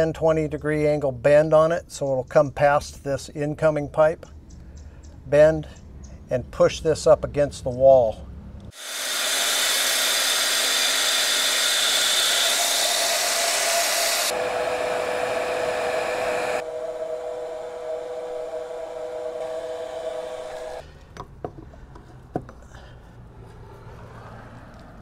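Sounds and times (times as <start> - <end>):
heat gun blowing air: 8.7 - 20.8.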